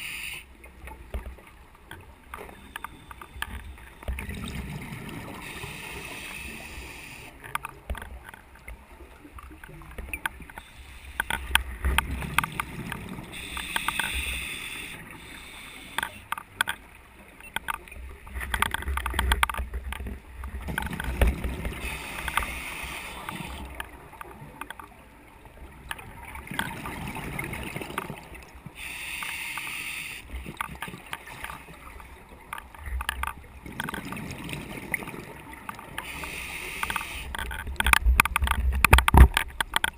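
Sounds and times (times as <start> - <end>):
regulator bubbles hissing: 2.4 - 7.4, 10.5 - 16.4, 20.4 - 24.2, 33.6 - 39.3.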